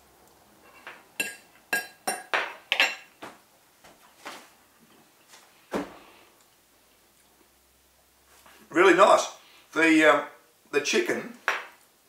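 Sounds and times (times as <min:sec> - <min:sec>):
fork clinking on a plate: 0:00.7 - 0:03.1.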